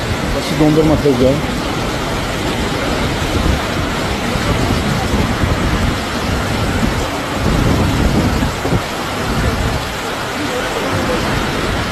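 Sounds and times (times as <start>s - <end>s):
floodwater rushing: 0.0s - 11.9s.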